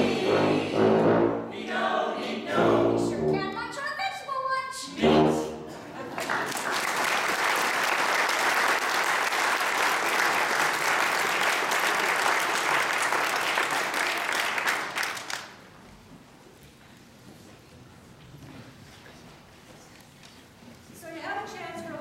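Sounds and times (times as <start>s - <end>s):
audience applauding: 6.1s - 15.6s.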